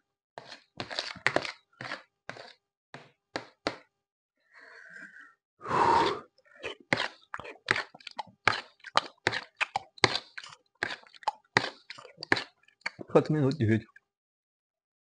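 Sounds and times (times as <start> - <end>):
wet chewing and mouth smacks: 6.6 - 13.1.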